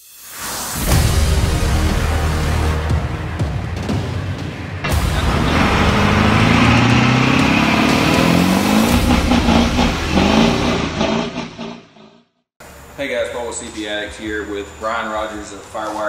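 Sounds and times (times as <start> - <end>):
engine revving hard: 4.9 - 12.0.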